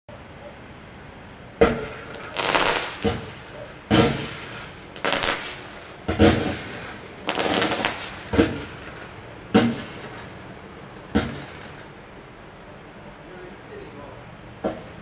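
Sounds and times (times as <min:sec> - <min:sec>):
rattling firework reports: 0:01.2 - 0:13.0
firework shots and bursts: 0:01.6 - 0:12.1.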